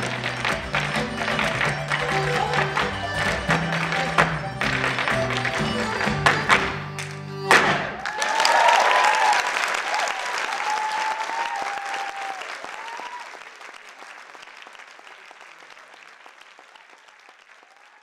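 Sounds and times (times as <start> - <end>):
audience applauding: 0.0 - 18.0
audience cheering: 7.6 - 14.7, 16.5 - 18.0.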